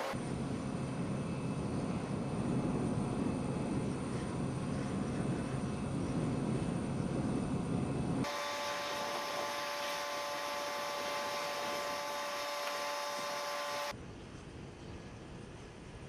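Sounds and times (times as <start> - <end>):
mechanical whine of held tones: 0.0 - 4.8, 6.9 - 14.0
hiss: 8.3 - 13.9.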